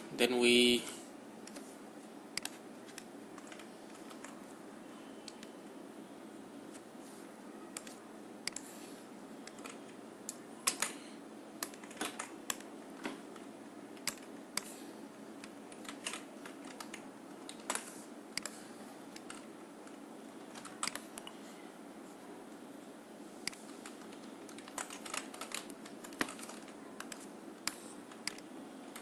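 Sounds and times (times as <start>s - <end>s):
faint room hum: 0.0s - 29.0s
keyboard and mouse clicks: 2.4s - 4.4s, 5.2s - 5.5s, 7.7s - 8.7s, 9.4s - 11.0s, 11.6s - 14.7s, 15.4s - 21.4s, 23.4s - 29.0s.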